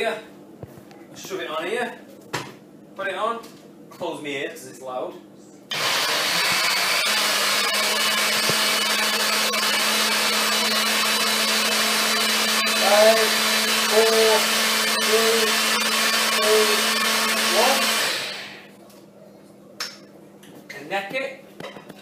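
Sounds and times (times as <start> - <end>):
blender whirring: 5.7 - 18.7.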